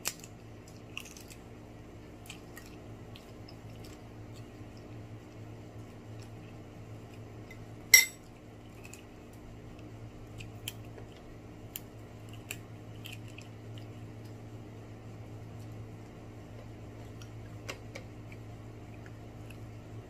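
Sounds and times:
steady low hum: 0.0 - 20.0
tableware clinking on a plate: 7.9 - 8.2.

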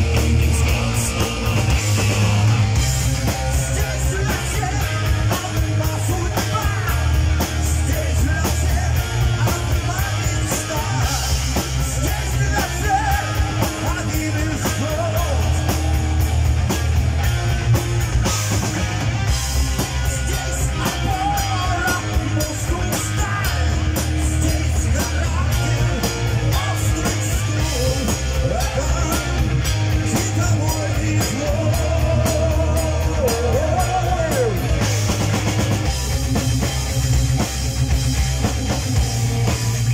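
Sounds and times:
man singing: 0.0 - 15.9, 19.8 - 35.0
bass guitar: 0.0 - 39.9
drum kit beat: 0.0 - 39.9
electric guitars: 0.0 - 39.9.

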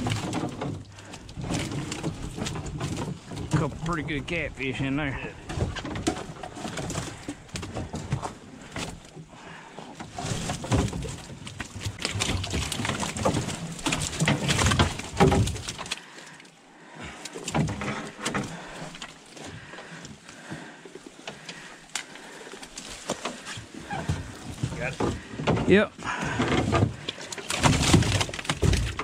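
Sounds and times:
net rattling and rustling: 0.0 - 4.3, 5.4 - 16.4, 17.3 - 29.0
fish flopping with wet slaps: 21.3 - 24.3.

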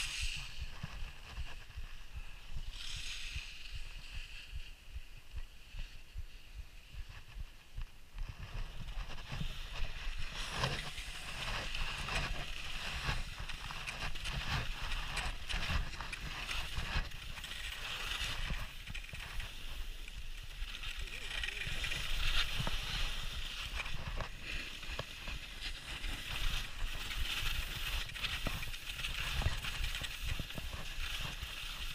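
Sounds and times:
skis scraping over snow: 0.0 - 31.9.

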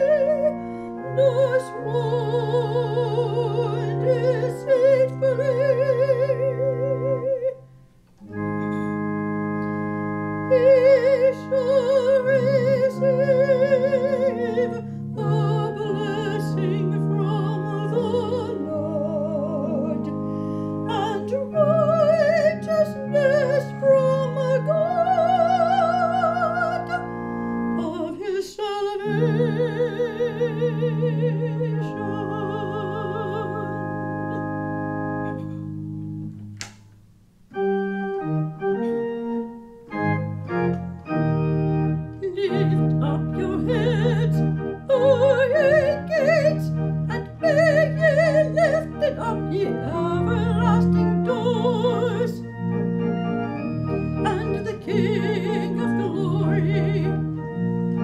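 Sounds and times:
woman singing with vibrato: 0.0 - 7.6, 10.5 - 20.2, 20.8 - 27.1, 27.8 - 34.3, 42.2 - 52.5, 54.2 - 57.3
organ sustained chords: 0.0 - 58.0.

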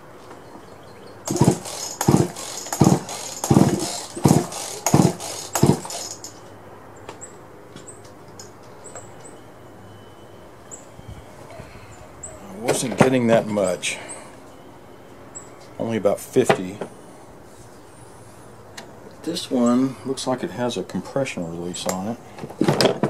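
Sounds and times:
chainsaw recoil starter pulls: 1.3 - 6.4.

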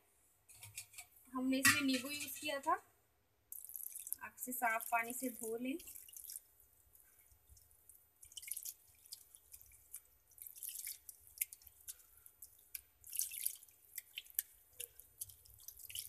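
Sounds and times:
water splashing and dripping: 3.5 - 16.0.

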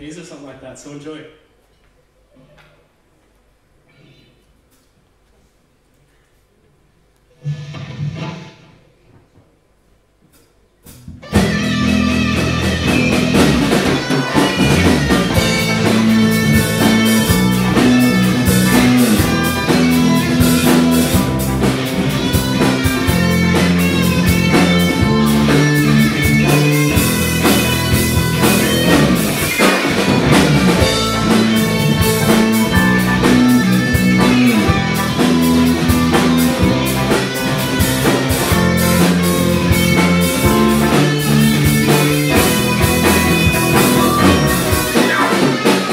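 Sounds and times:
electric guitar: 7.3 - 9.0, 10.9 - 45.9
drum kit: 7.3 - 9.1, 10.2 - 45.9
bass guitar: 10.8 - 45.9
keyboard: 11.2 - 45.9.

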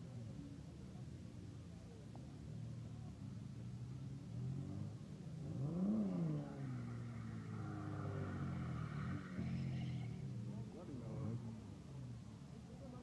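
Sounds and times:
car engine revving: 4.2 - 11.8.

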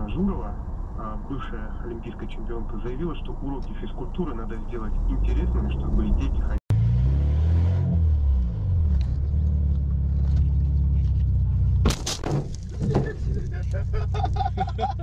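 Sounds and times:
car cabin rumble: 8.8 - 15.0
windshield cracking crash: 11.8 - 13.4.

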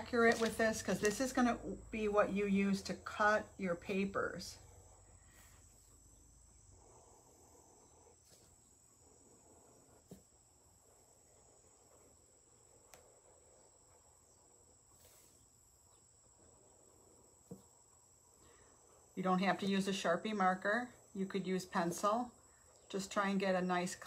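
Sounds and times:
faint high-pitched whine: 0.0 - 24.0.

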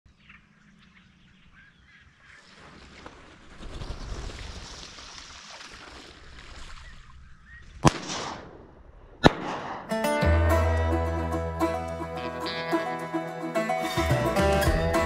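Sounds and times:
shotgun shots: 7.8 - 10.0
banjo-style plucked-string music: 9.9 - 15.0.

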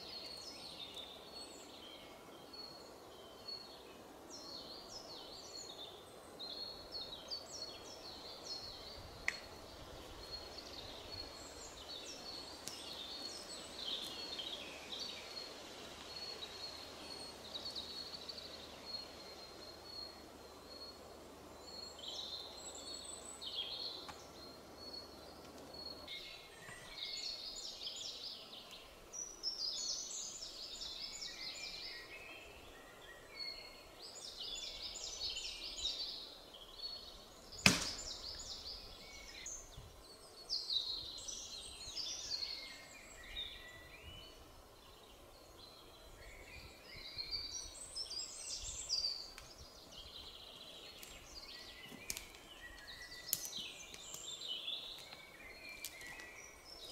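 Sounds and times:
sharp knock: 37.6 - 38.2.

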